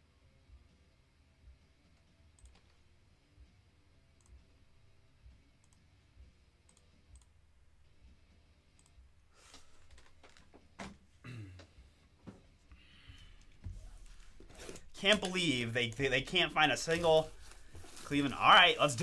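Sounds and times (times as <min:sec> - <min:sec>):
computer mouse clicks: 0:02.4 - 0:02.8, 0:06.7 - 0:07.4, 0:08.8 - 0:09.0.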